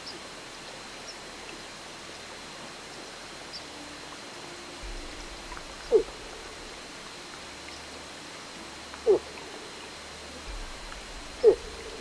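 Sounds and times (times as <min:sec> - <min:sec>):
moose grunts: 0:11.3 - 0:12.0.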